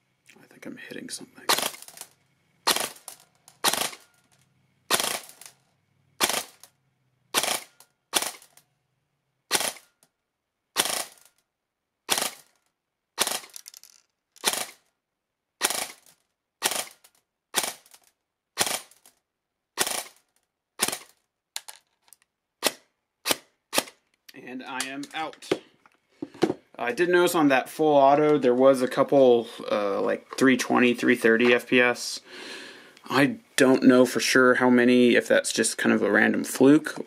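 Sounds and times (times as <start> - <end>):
airsoft rifle shots: 1.5 - 2.0, 2.6 - 4.1, 4.9 - 5.5, 6.2 - 6.7, 7.3 - 8.5, 9.5 - 9.9, 10.8 - 11.2, 12.1 - 12.5, 13.2 - 13.5, 14.4 - 14.8, 15.6 - 18.0, 18.6 - 19.0, 19.8 - 20.2, 20.8 - 21.2, 22.6 - 24.0.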